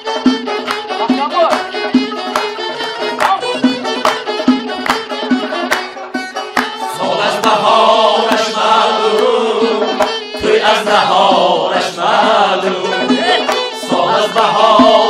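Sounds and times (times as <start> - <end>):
sharp percussive strikes: 0.0 - 15.0
traditional instrumental accompaniment: 0.0 - 15.0
men singing together: 6.8 - 15.0.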